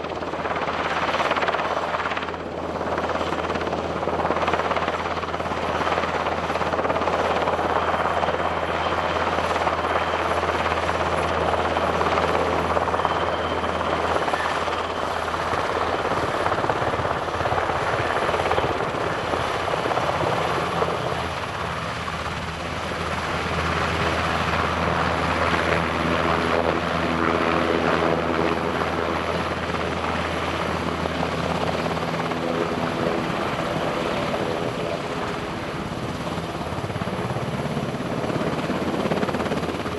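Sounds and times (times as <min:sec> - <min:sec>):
helicopter rotor beating: 0:00.0 - 0:39.9
high turbine whine: 0:00.0 - 0:39.9.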